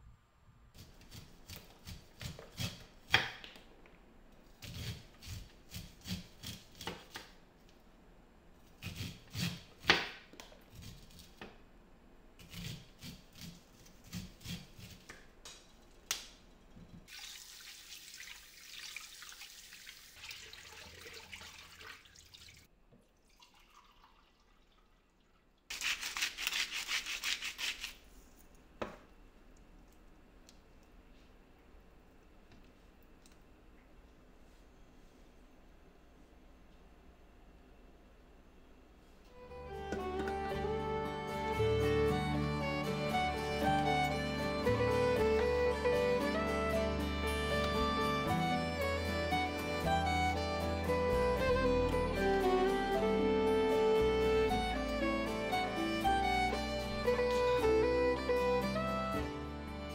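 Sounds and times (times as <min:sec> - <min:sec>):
knife shaving corn kernels: 0:00.8 - 0:03.2, 0:04.6 - 0:07.2, 0:08.7 - 0:09.8, 0:10.7 - 0:11.4, 0:12.4 - 0:15.2, 0:25.7 - 0:28.1
water pouring: 0:17.1 - 0:26.6.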